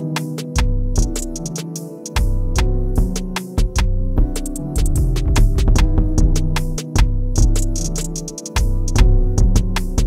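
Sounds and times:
background music with percussive beat: 0:00.0 - 0:10.0.

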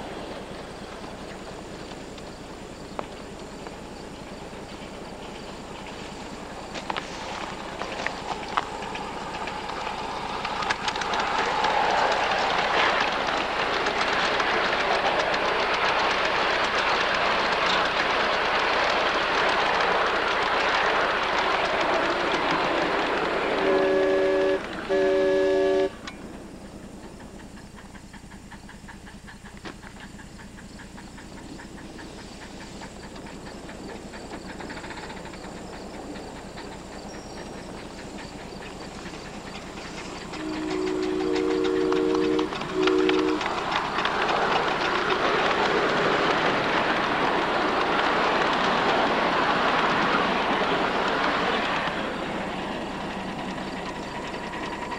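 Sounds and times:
train running on track: 0:00.0 - 0:54.9
steam train whistle: 0:23.5 - 0:26.1, 0:40.3 - 0:43.5.

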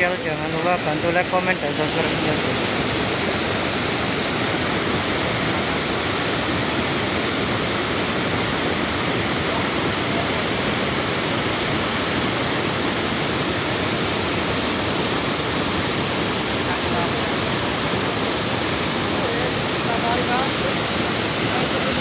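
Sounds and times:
mudflow rushing water: 0:00.0 - 0:22.0.

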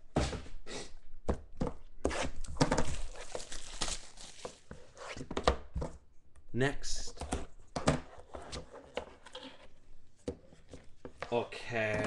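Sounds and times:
plastic wrap crinkling and tearing: 0:02.8 - 0:04.7.

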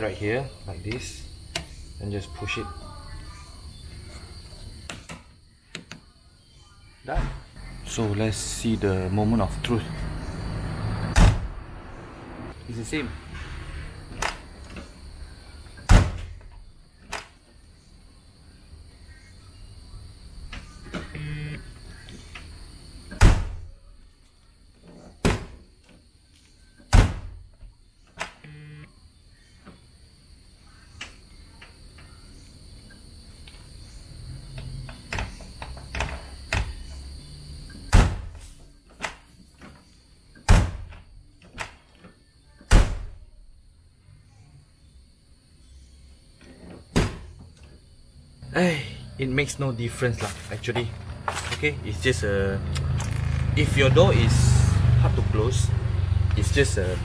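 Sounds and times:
car door shutting: 0:11.1 - 0:11.5.

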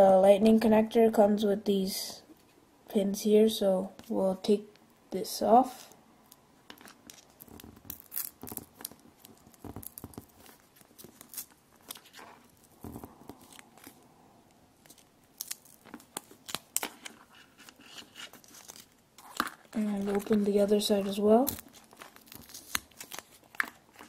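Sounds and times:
plastic packaging crinkling: 0:06.2 - 0:24.0.

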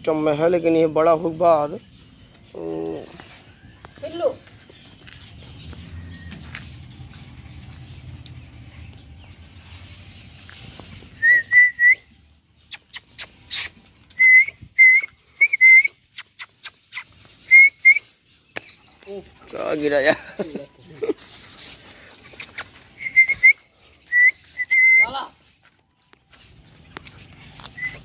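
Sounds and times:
person whistling short notes: 0:11.2 - 0:12.1, 0:12.7 - 0:18.0, 0:23.0 - 0:25.2.

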